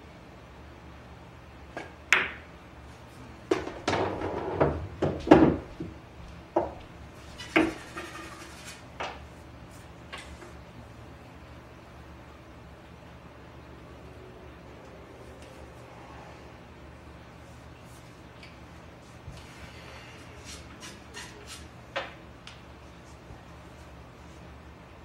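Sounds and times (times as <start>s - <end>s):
balls rumbling across table: 3.5s - 6.0s, 6.6s - 8.8s
pool balls clacking together: 3.5s - 6.8s.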